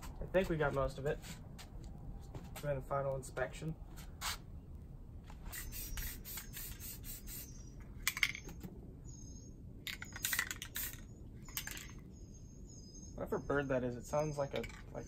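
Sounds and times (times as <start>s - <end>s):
spray paint can hissing: 5.5s - 7.7s, 10.0s - 11.7s.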